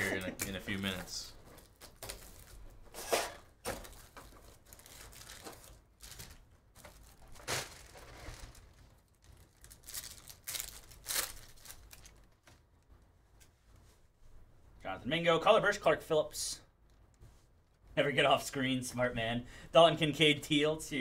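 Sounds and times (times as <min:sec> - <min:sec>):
plastic and foil crinkling: 0:00.0 - 0:13.0.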